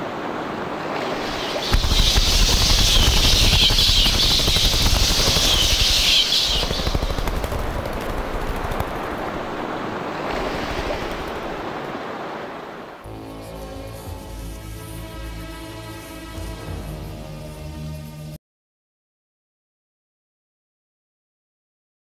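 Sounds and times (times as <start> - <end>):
loud hissing rush: 1.0 - 9.6
deep crackling rumble: 1.4 - 9.8.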